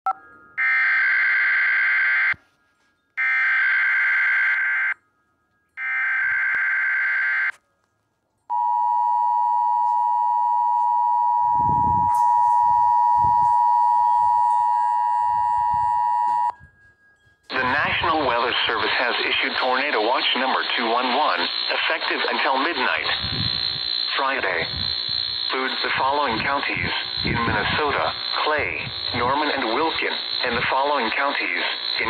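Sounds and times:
buzzy digital data bursts: 17.6s - 32.0s.

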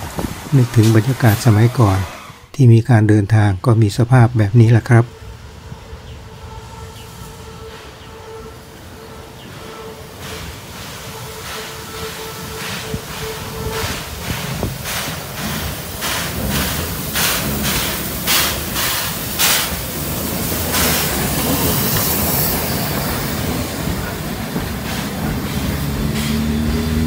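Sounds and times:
loud hiss of steam: 0.0s - 2.5s, 5.1s - 27.0s
steam locomotive exhaust puffing: 0.0s - 2.5s, 5.1s - 27.0s
train coaches rumbling on rails: 0.0s - 2.5s, 3.3s - 27.0s.

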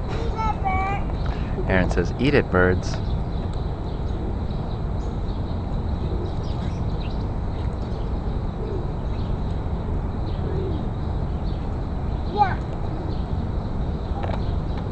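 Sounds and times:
low outdoor background rumble: 0.0s - 14.9s
pigeons cooing: 3.8s - 14.9s.

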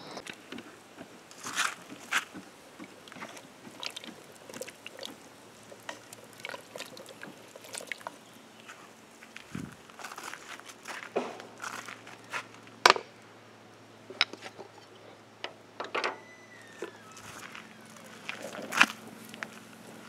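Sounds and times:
campfire crackling: 0.0s - 20.0s
footsteps shuffling on gravel: 8.6s - 12.8s, 17.2s - 20.0s.

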